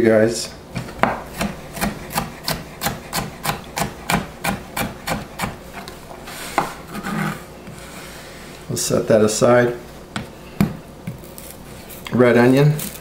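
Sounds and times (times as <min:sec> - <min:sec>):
knife chopping on plastic board: 0:00.8 - 0:05.9, 0:10.1 - 0:11.3.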